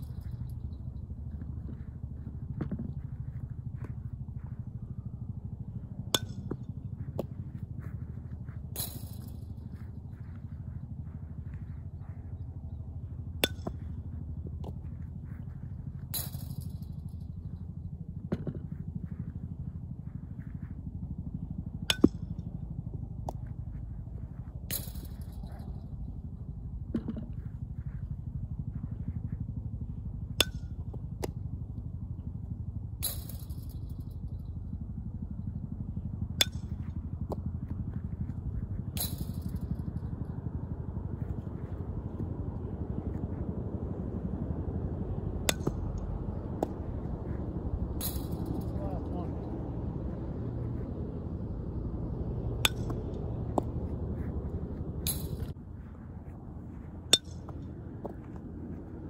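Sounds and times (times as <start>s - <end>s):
low steady rumble: 0.0s - 59.0s
metal bat ringing ping: 4.4s - 7.3s, 8.8s - 10.4s, 13.2s - 14.0s, 15.6s - 16.8s, 21.7s - 22.4s, 24.3s - 26.1s, 30.4s - 30.8s, 36.3s - 37.7s, 38.9s - 40.2s, 45.4s - 50.0s, 52.6s - 55.5s, 57.1s - 57.7s.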